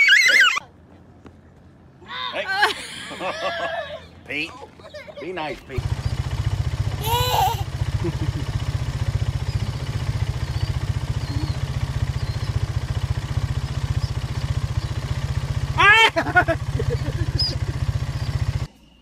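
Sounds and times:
small engine idling: 3.1 - 18.7
faint high peeps: 9.3 - 12.8.

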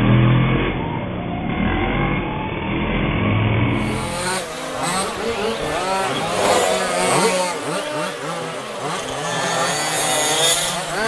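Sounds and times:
small rc car engines revving: 3.6 - 11.0.

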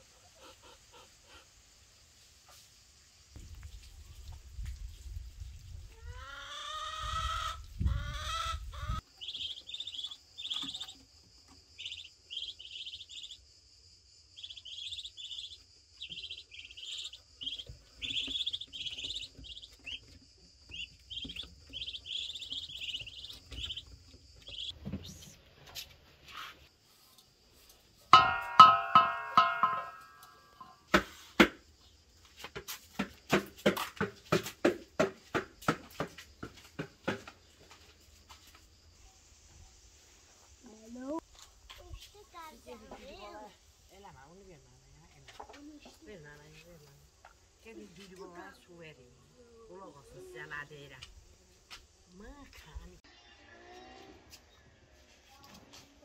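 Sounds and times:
ducklings cheeping: 7.3 - 11.0, 11.8 - 13.4, 14.4 - 25.3
rapid pitched calls: 14.4 - 20.0
wooden spoon knocking in a bowl: 28.2 - 31.0.

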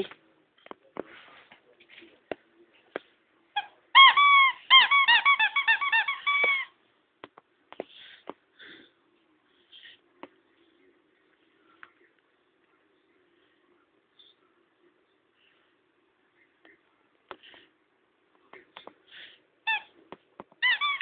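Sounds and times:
squeaky dog toy squeaking: 3.5 - 6.8, 19.6 - 20.0, 20.6 - 21.0.

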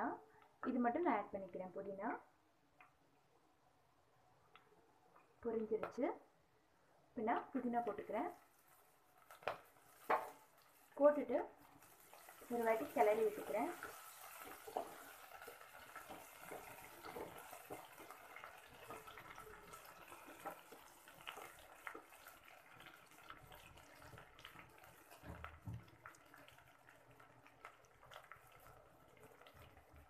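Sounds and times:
leaves sizzling in hot oil: 7.6 - 30.0.

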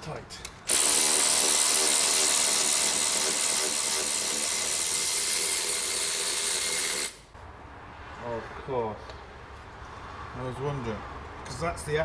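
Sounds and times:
electric ratchet running: 0.7 - 7.3.

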